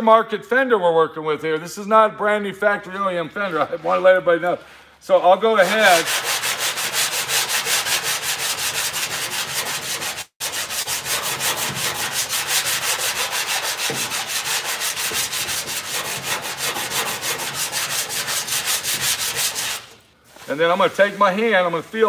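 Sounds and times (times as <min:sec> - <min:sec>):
sandpaper strokes on car body: 0:05.6 - 0:22.0.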